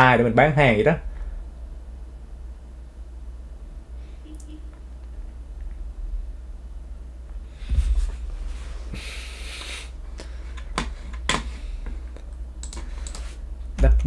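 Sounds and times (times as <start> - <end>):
low steady hum: 0.0 - 14.0
computer keyboard typing: 12.6 - 13.3.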